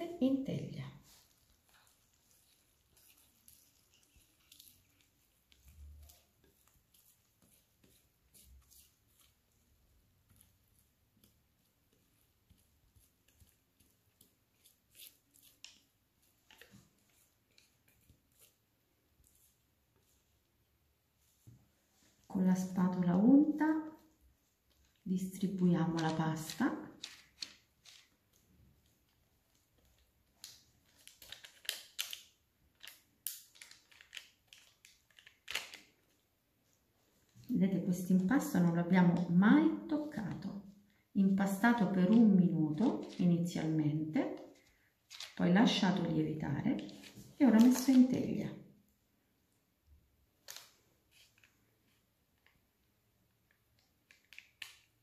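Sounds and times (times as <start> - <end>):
parchment paper crackling: 0.0 - 48.4, 50.2 - 55.0
sticky dough clicks and scrapes: 1.1 - 20.2.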